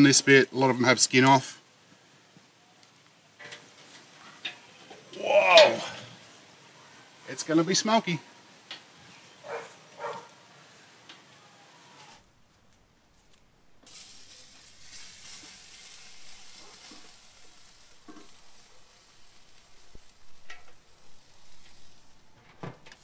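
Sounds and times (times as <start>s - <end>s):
gas smoker hissing: 3.4s - 12.3s, 13.8s - 23.0s.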